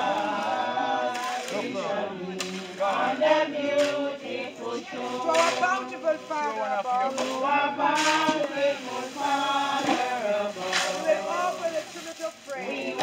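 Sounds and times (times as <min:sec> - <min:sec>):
group singing a hymn: 0:00.0 - 0:13.0.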